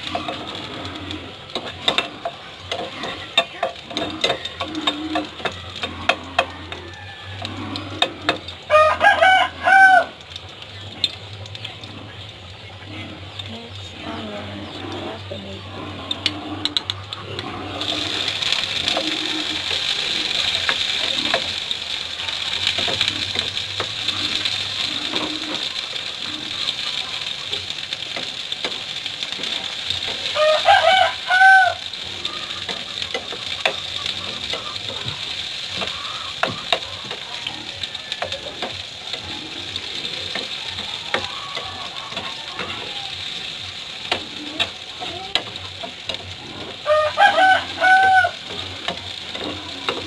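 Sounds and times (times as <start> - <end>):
vegetables sizzling in oil: 0.0 - 50.0.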